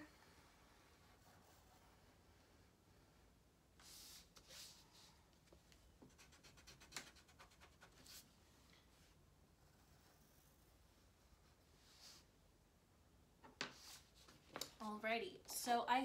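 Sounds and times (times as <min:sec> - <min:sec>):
pencil scratching on paper: 0:00.2 - 0:03.2, 0:06.0 - 0:08.3, 0:09.6 - 0:12.2.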